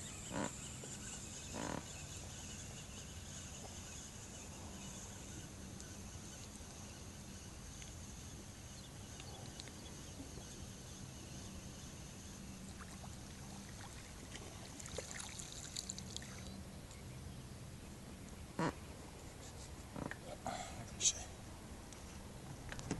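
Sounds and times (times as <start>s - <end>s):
faint steady hum: 0.0s - 22.9s
water splashing and dripping: 13.7s - 16.5s.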